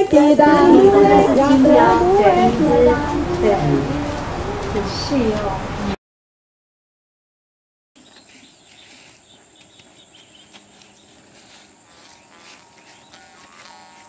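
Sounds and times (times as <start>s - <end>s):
high-pitched insect drone: 11.4s - 14.0s.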